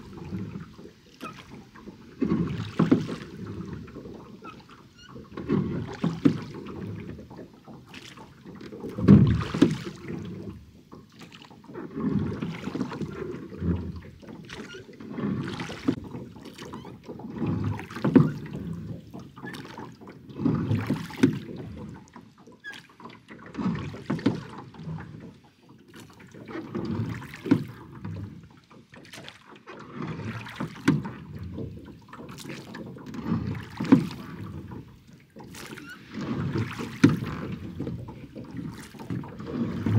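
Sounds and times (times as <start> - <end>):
oars dipping in water: 0.0 - 39.9.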